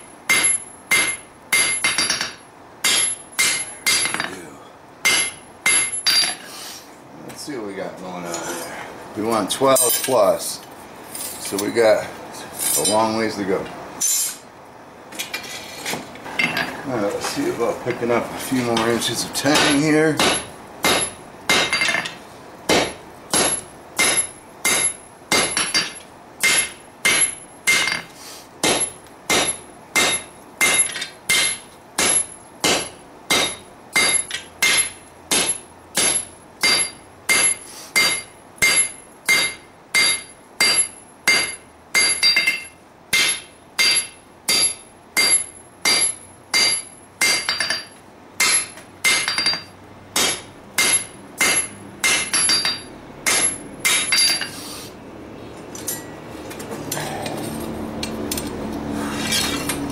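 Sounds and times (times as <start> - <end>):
hammer ringing on anvil: 0.3 - 4.3, 5.1 - 6.4, 22.8 - 54.5.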